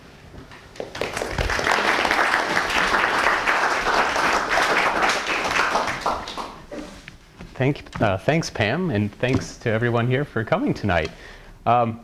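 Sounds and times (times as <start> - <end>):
crowd applauding: 0.8 - 6.7.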